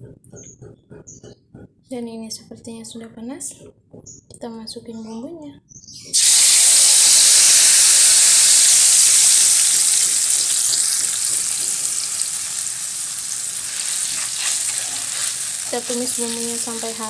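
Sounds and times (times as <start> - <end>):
spice paste sizzling in oil: 6.1 - 17.0.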